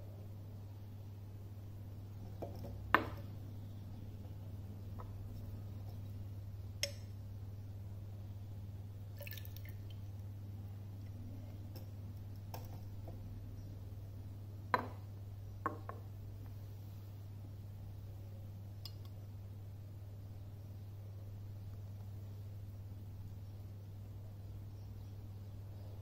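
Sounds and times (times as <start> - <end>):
steady low hum: 0.0 - 26.0
glass beaker knocking on wood: 2.4 - 3.3, 14.8 - 15.0, 15.6 - 16.1.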